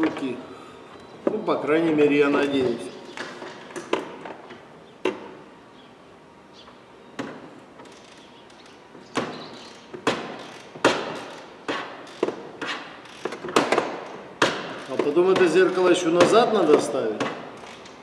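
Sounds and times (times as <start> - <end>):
ratchet wrench metallic clicks: 7.8 - 8.8, 9.6 - 12.3, 13.0 - 13.6.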